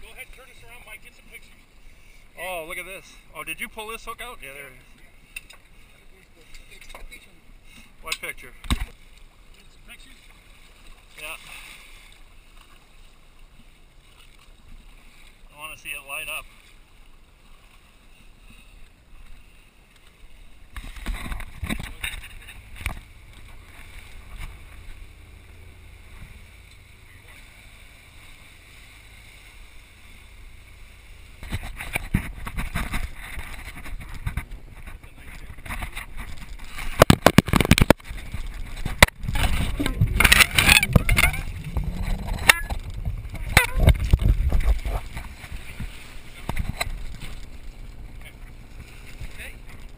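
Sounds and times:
water rushing past: 7.7s - 49.8s
boat engine drone: 18.0s - 49.9s
wind buffeting microphone: 37.0s - 46.9s.

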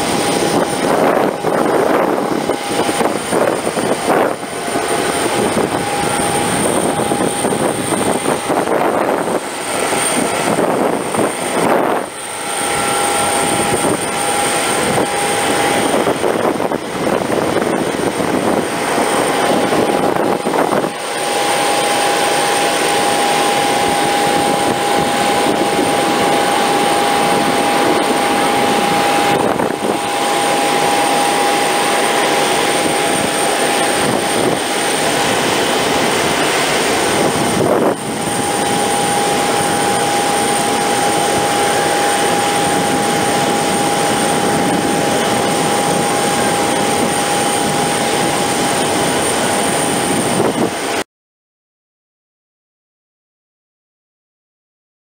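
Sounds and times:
jet engine whine and roar: 0.0s - 51.1s.

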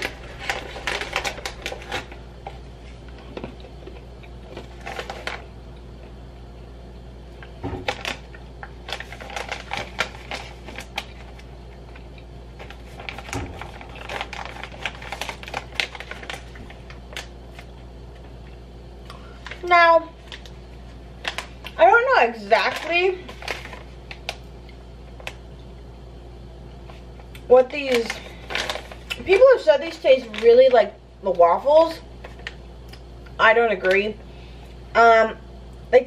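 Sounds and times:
plastic snack pouch crinkling: 0.0s - 5.5s, 7.8s - 18.3s, 21.2s - 24.5s, 27.3s - 30.8s.

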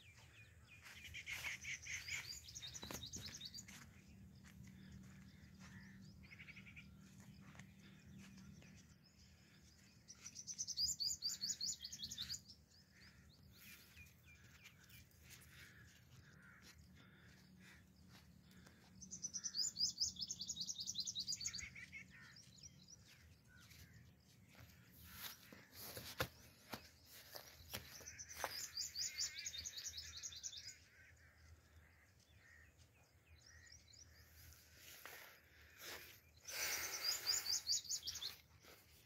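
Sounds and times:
songbird singing rapid notes: 0.0s - 14.9s, 19.0s - 35.1s, 35.9s - 39.0s
faint bird chirps: 0.0s - 39.0s.

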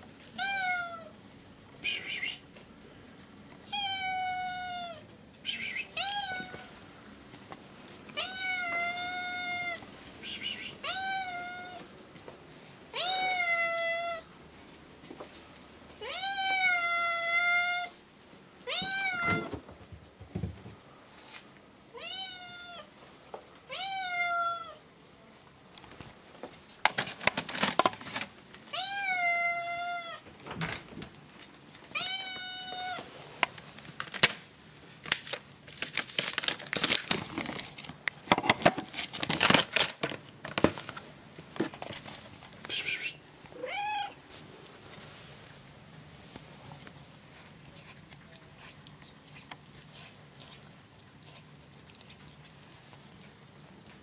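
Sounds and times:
cat meowing: 0.4s - 1.1s, 3.7s - 5.1s, 5.9s - 6.8s, 8.2s - 9.8s, 10.6s - 11.8s, 12.9s - 14.3s, 16.0s - 18.0s, 18.6s - 19.6s, 21.9s - 22.9s, 23.7s - 24.8s, 28.7s - 30.2s, 31.9s - 33.1s, 43.6s - 44.2s.

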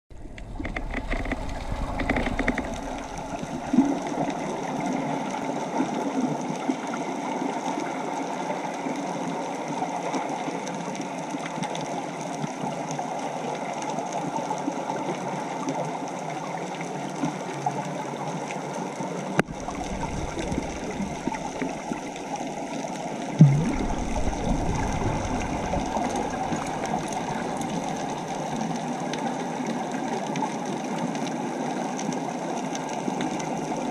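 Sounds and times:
muffled underwater noise: 0.1s - 6.0s, 19.3s - 33.9s.

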